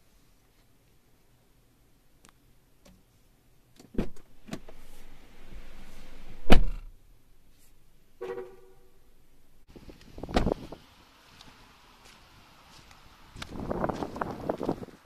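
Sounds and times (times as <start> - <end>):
hiss of outside air: 4.4 - 6.9, 9.6 - 15.0
car door thumps: 6.4 - 6.9, 10.2 - 10.6
short tone: 8.2 - 9.0.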